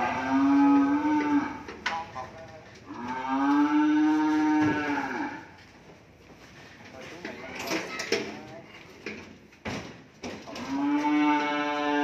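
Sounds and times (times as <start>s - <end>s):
cattle mooing: 0.0s - 1.7s, 2.8s - 5.5s, 10.5s - 12.0s.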